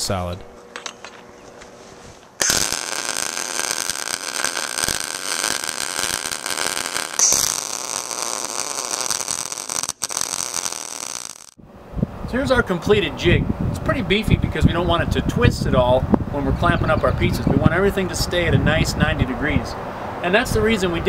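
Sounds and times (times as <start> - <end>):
welding arc crackling: 2.4 - 11.6.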